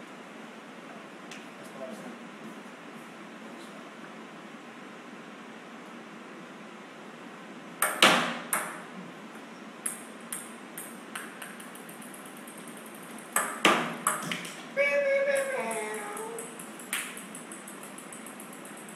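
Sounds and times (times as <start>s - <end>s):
ball bouncing on hard floor: 7.8s - 8.8s, 9.8s - 14.7s, 15.4s - 18.9s.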